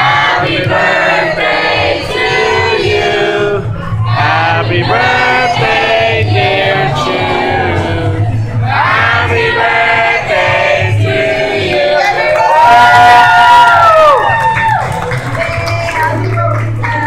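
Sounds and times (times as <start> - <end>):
group singing birthday song: 0.0 - 12.6.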